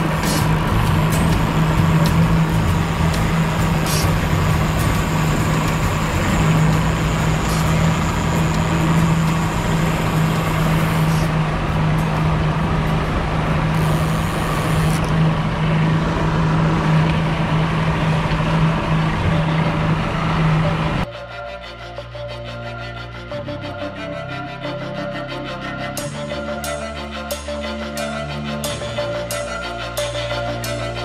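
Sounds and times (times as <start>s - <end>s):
outboard motor humming: 0.0s - 11.3s, 13.4s - 21.0s.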